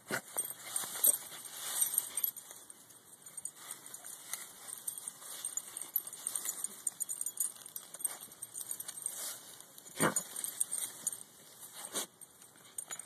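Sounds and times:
collar tags jingling: 0:00.0 - 0:13.0
dogs digging in pine needles: 0:00.0 - 0:13.0.

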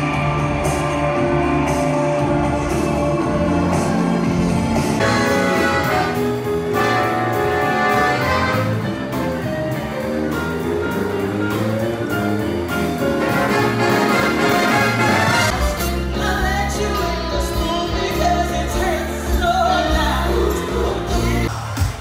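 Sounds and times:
big band jazz music: 0:00.0 - 0:21.5
trumpets and trombones playing: 0:05.0 - 0:09.3, 0:13.1 - 0:16.2.

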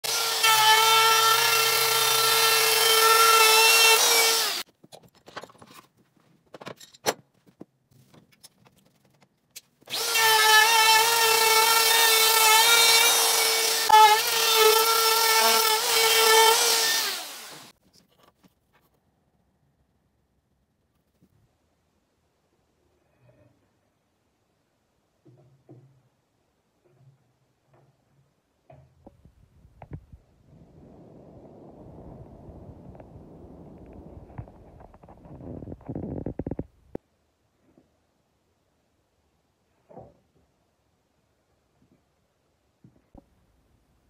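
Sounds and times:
wood router whining: 0:00.0 - 0:04.6, 0:09.9 - 0:17.7.

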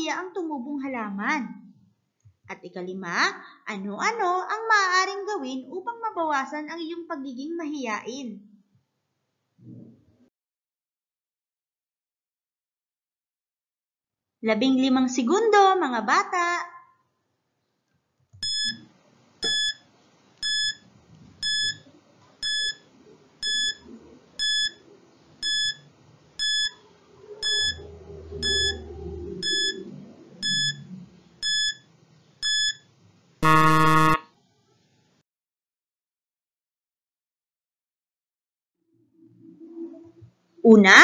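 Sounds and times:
loud buzzer: 0:18.4 - 0:18.8, 0:19.4 - 0:19.8, 0:20.4 - 0:20.8, 0:21.4 - 0:21.8, 0:22.4 - 0:22.8, 0:23.4 - 0:23.8, 0:24.4 - 0:24.8, 0:25.4 - 0:25.8, 0:26.4 - 0:26.8, 0:27.4 - 0:27.8, 0:28.4 - 0:28.8, 0:29.4 - 0:29.8, 0:30.4 - 0:30.8, 0:31.4 - 0:31.8, 0:32.4 - 0:32.8, 0:33.4 - 0:34.3
timer short beeps: 0:18.4 - 0:18.8, 0:19.4 - 0:19.8, 0:20.4 - 0:20.8, 0:21.4 - 0:21.8, 0:22.4 - 0:22.8, 0:23.4 - 0:23.8, 0:24.4 - 0:24.8, 0:25.4 - 0:25.8, 0:26.4 - 0:26.8, 0:27.4 - 0:27.8, 0:28.4 - 0:28.8, 0:29.4 - 0:29.8, 0:30.4 - 0:30.8, 0:31.4 - 0:31.8, 0:32.4 - 0:32.8, 0:33.4 - 0:34.2.

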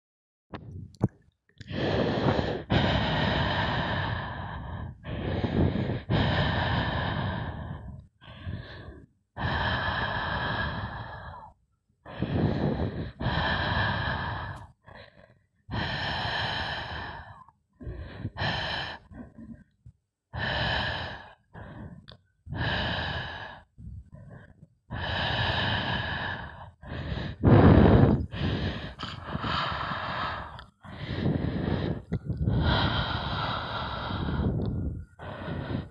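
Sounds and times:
deer breathing heavily: 0:20.4 - 0:35.9.

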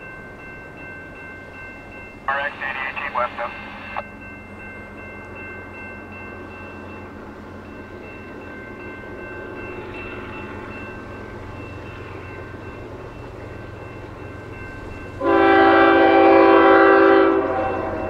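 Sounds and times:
crossing warning bell ringing: 0:00.0 - 0:18.0
locomotive air horn chord: 0:15.2 - 0:18.0.

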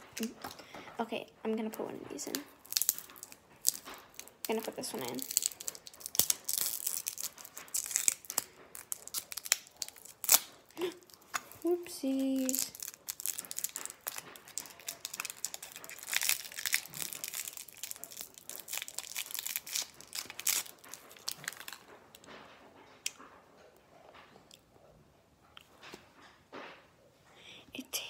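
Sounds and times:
wrapper crinkling and tearing: 0:00.0 - 0:00.6, 0:02.1 - 0:21.9.

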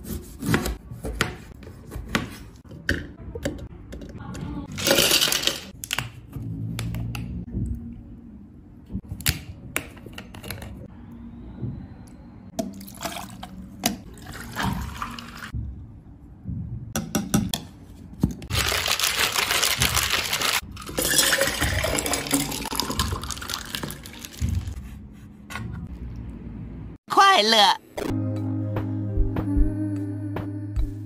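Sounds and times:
liquid poured over ice cubes: 0:18.6 - 0:24.4.

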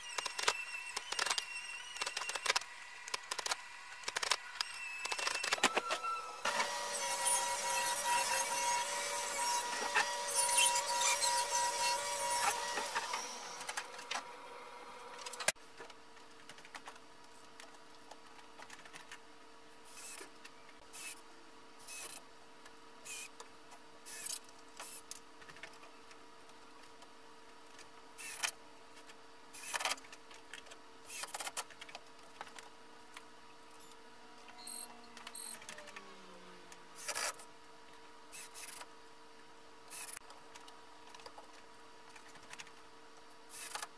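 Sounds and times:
loud steady mechanical sound: 0:05.5 - 0:15.5
cordless drill driving screws: 0:05.6 - 0:15.5.

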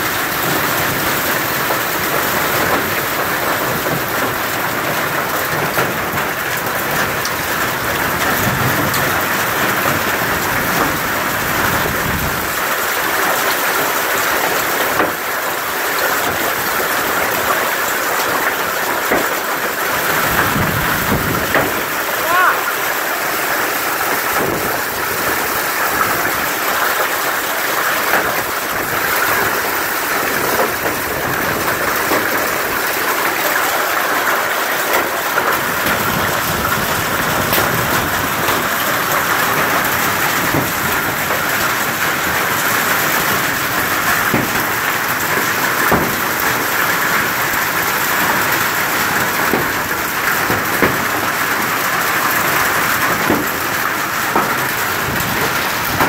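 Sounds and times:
hail and rain pelting: 0:00.0 - 0:56.0
hailstones striking sharply: 0:00.1 - 0:56.0.

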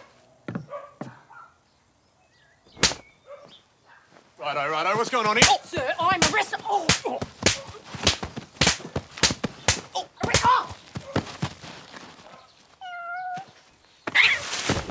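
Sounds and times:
open-hand slaps: 0:02.8 - 0:03.1, 0:05.3 - 0:10.6.

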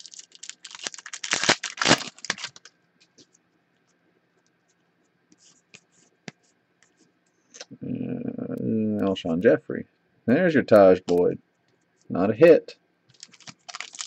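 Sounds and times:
foil wrapper tearing and crinkling: 0:00.0 - 0:02.7, 0:13.1 - 0:14.0.

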